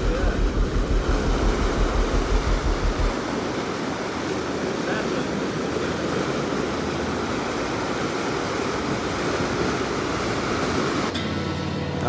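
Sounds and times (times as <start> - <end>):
low steady rumble: 0.0 - 3.6
white water rushing: 0.0 - 12.0.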